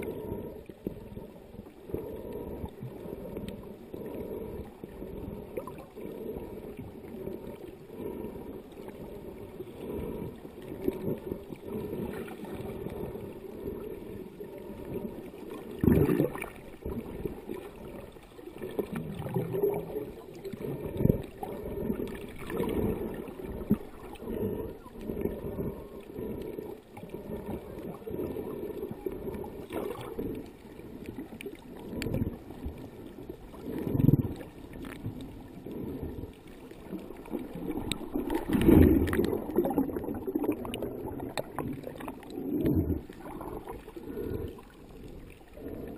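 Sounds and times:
muffled underwater water sloshing: 0.0 - 45.9
water splashing surges: 14.1 - 45.9.

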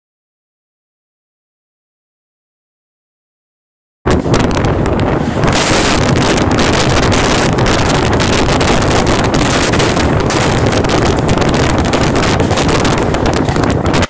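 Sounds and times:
rushing wind: 4.0 - 14.0
passing train clicks and rattles: 4.1 - 14.0
train rail rumble: 4.1 - 14.0.

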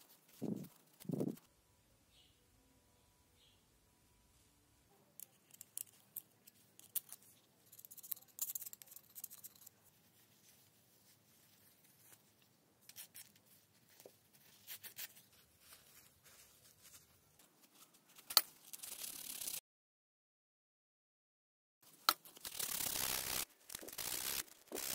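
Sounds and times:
small metal parts clicking and scraping: 5.2 - 9.8, 22.1 - 24.9.

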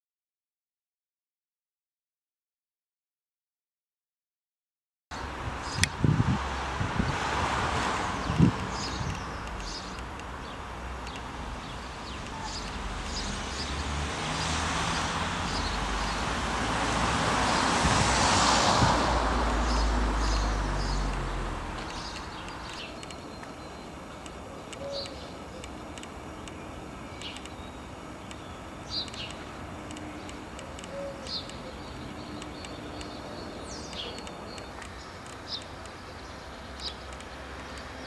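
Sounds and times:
small birds chirping: 5.2 - 6.0, 8.2 - 16.4, 19.6 - 38.0
doves cooing: 24.4 - 25.7, 30.6 - 31.8.

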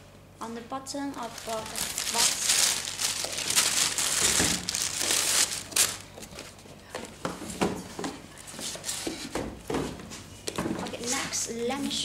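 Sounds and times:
tissue paper rustling: 1.1 - 6.5.

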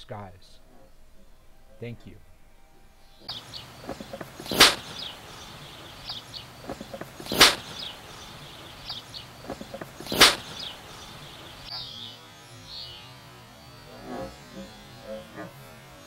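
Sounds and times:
sharp cracks: 3.2 - 11.9.

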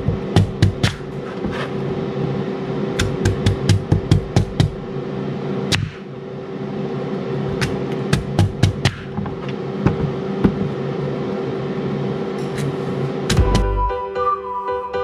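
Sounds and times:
air fryer whirring hum: 0.0 - 13.8.

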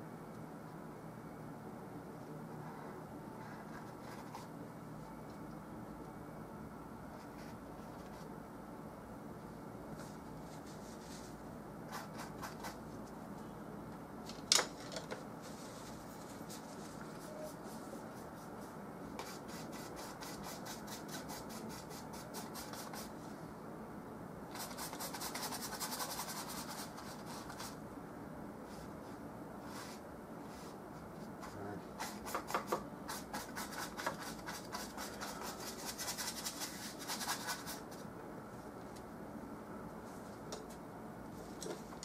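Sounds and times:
paint brush rubbing on canvas: 32.0 - 38.0.

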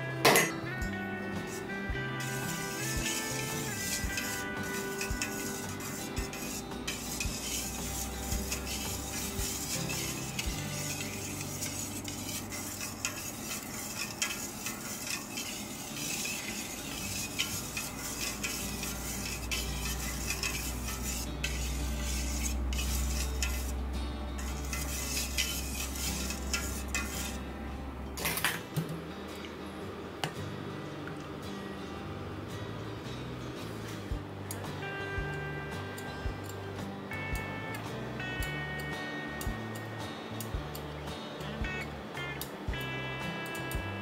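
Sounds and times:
whisk scraping metal bowl: 1.4 - 27.4.

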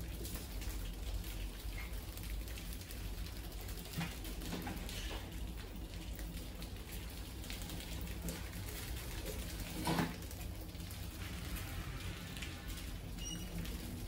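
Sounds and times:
rats scurrying and scratching: 0.2 - 14.0.

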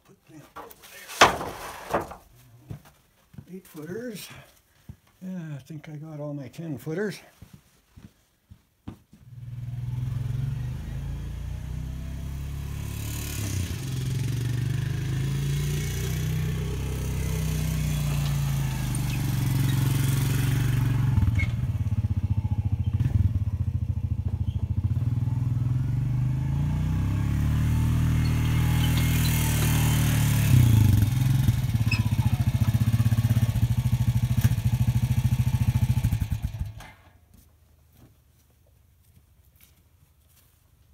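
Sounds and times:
atv engine chugging: 13.4 - 36.8.

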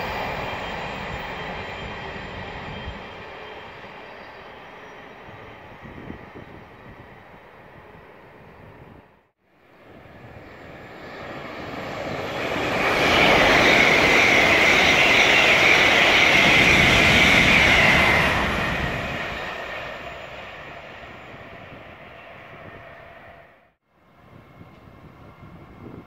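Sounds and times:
train wheels rushing on rail: 0.0 - 6.6, 11.2 - 23.2
train high whine: 0.0 - 26.0.

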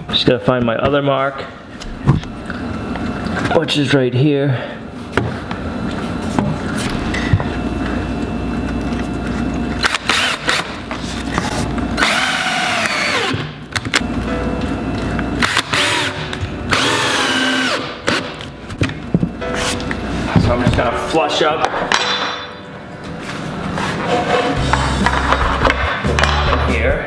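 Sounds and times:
cordless drill driving screw into wood: 12.0 - 13.5.

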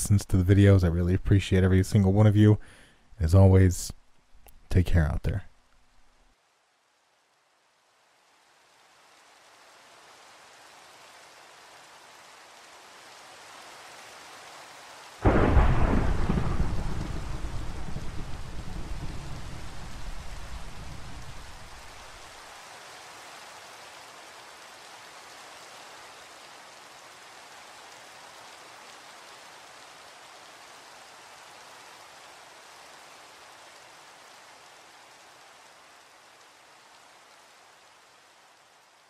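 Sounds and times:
steady rain: 0.0 - 39.0
thunder rumbling: 15.2 - 22.2.

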